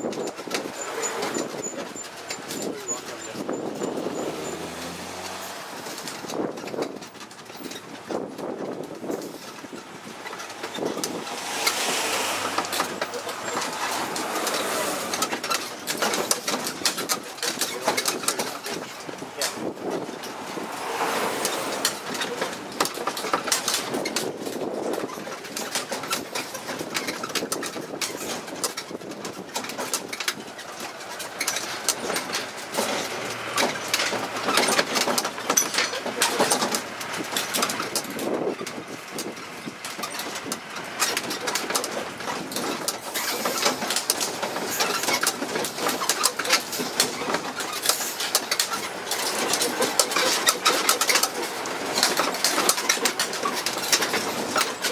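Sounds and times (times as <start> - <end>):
engine running: 0.0 - 26.8, 28.5 - 54.9
carriages rattling and clattering: 0.0 - 54.9.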